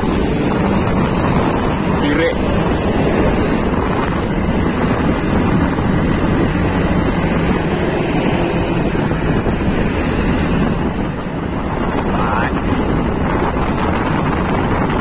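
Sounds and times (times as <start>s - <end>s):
engine and road noise: 0.0s - 15.0s
wind rushing over microphone: 0.0s - 15.0s.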